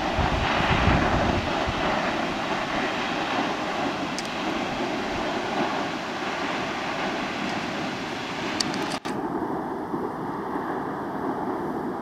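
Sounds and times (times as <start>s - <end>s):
waterfall roaring: 0.0s - 9.1s
wind buffeting microphone: 0.0s - 12.0s.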